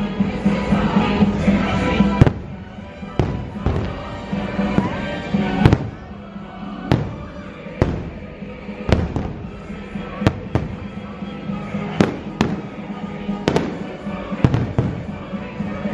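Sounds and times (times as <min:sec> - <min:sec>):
music soundtrack: 0:00.0 - 0:15.9
fireworks bangs: 0:02.1 - 0:06.2, 0:06.8 - 0:11.1, 0:11.8 - 0:15.4.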